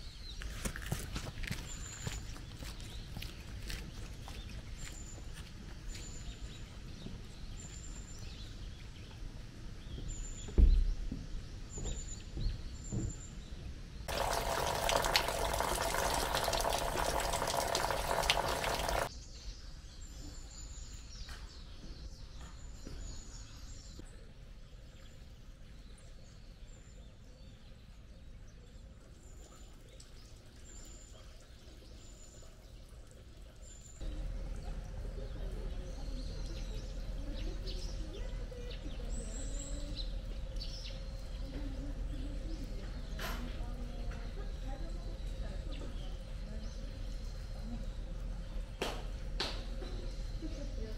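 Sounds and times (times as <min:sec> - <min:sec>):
water splashing: 0:14.1 - 0:19.1.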